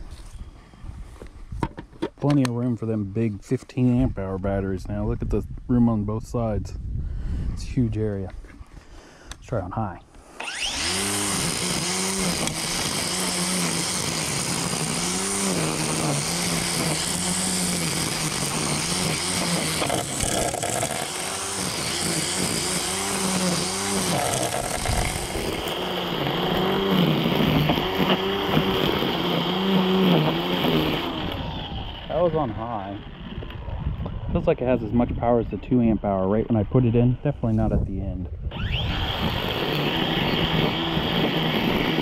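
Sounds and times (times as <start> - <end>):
string trimmer motor whine: 10.2 - 35.2, 38.4 - 42.0.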